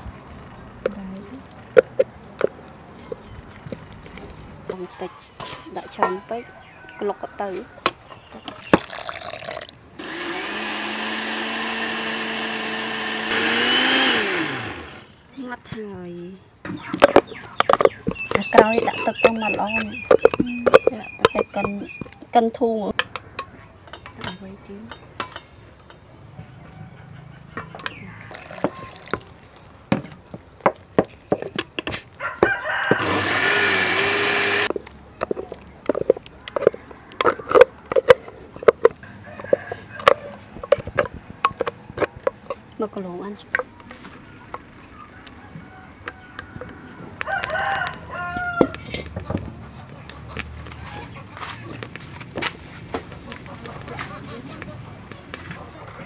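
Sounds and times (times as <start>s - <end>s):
water pouring into jar: 8.7s - 9.8s, 28.3s - 29.6s
blender running: 10.0s - 15.2s, 32.9s - 34.7s.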